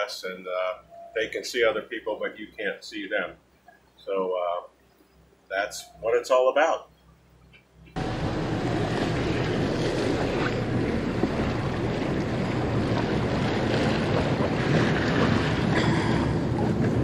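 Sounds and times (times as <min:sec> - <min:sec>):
water rushing along hull: 0:08.0 - 0:17.0
wind buffeting microphone: 0:08.0 - 0:17.0.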